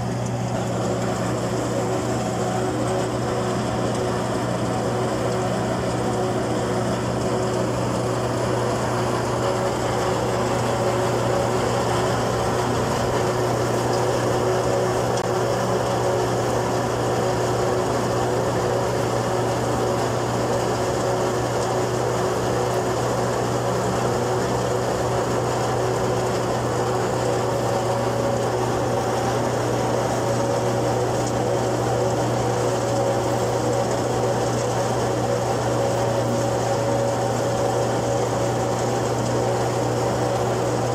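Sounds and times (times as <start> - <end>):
thresher machine humming: 0.0 - 40.9.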